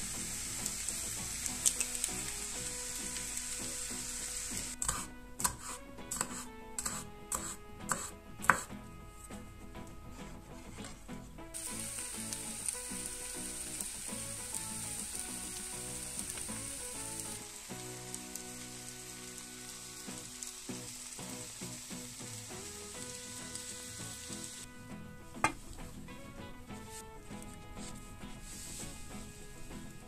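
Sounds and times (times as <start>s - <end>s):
food sizzling in a frying pan: 0.0s - 5.0s, 11.6s - 24.7s, 27.8s - 29.4s
background music: 0.0s - 30.0s.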